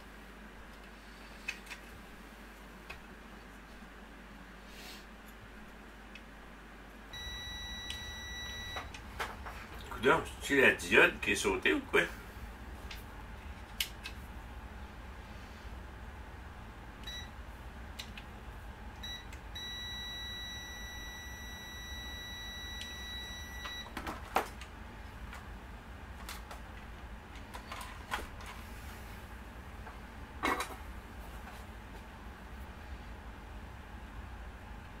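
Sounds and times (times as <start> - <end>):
multimeter beeping: 7.2 - 9.0, 17.0 - 17.3, 19.0 - 24.0.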